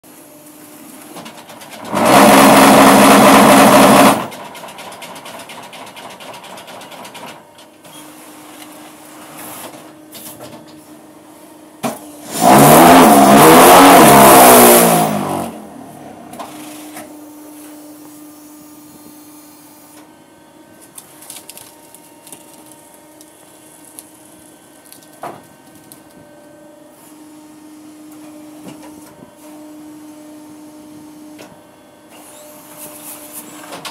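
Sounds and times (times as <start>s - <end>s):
machine humming quietly: 15.6s - 33.3s.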